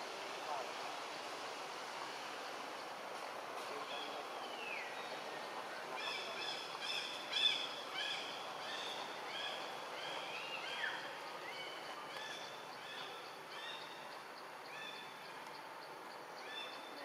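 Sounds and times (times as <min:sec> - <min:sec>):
steady background hiss: 0:00.0 - 0:17.0
bird chirping: 0:03.9 - 0:17.0.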